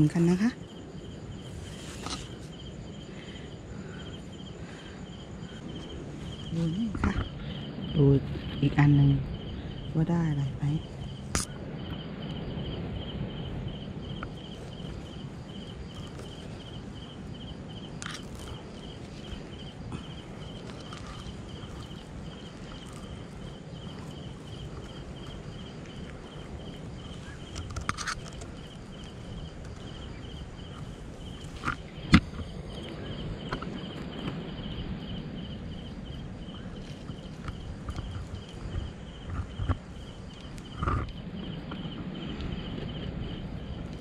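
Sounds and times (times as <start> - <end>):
cricket chirping: 0.0 - 44.0
low rustling: 12.4 - 44.0.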